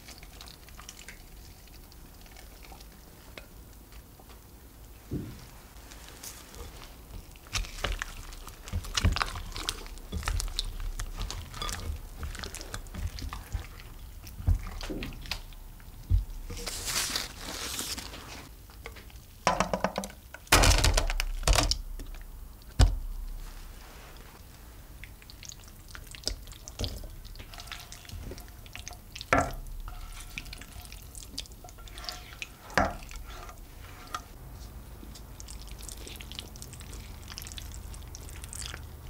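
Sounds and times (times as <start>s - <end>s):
spatula stirring in glass bowl: 6.6s - 15.3s, 26.8s - 34.4s
wet mixture pouring: 6.7s - 18.4s, 25.0s - 34.4s, 35.2s - 39.0s.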